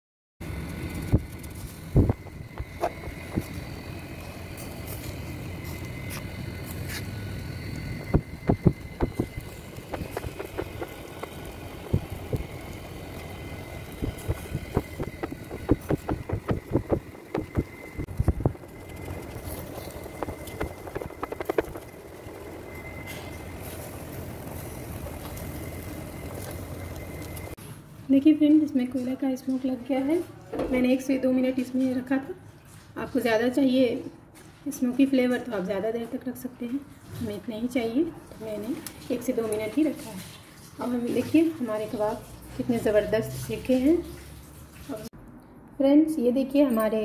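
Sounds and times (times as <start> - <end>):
low rumble: 0.4 - 27.6.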